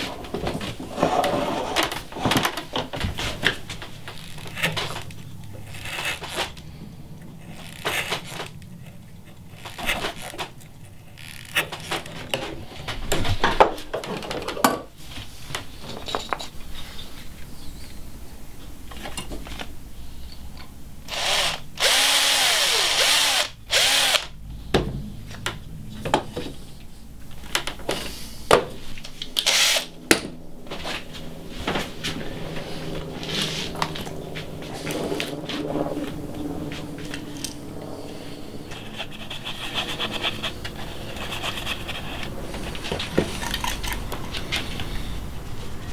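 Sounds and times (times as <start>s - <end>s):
electric drill boring into wood: 21.1s - 24.3s, 29.4s - 30.0s
knocks and scrapes on wood: 38.7s - 43.7s.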